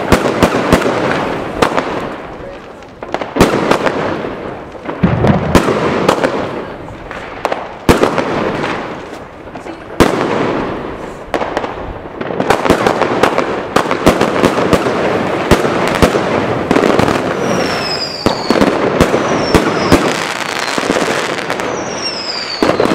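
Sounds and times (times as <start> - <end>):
firework bangs and pops: 0.0 - 22.9
firework crackle: 0.0 - 22.9
falling firework whistles: 17.0 - 22.9.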